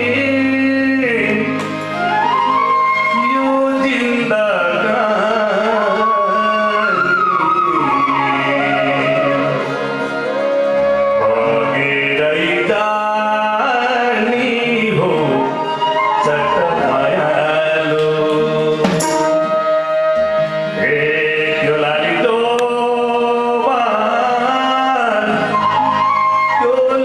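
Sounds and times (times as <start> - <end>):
man singing: 0.0 - 2.4, 3.0 - 19.7, 20.6 - 27.0
guitars and stringed instruments: 14.0 - 27.0
hand drums: 18.8 - 19.7.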